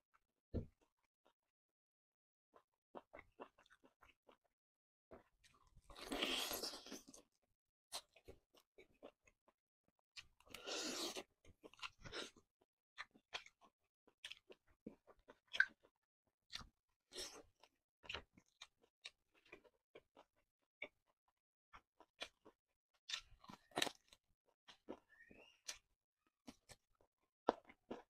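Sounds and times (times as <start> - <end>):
person chewing with mouth smacks: 13.0 - 21.0.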